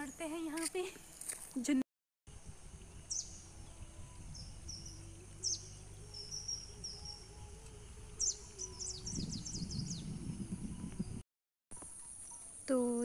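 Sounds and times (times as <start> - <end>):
small birds chirping: 3.0 - 11.2.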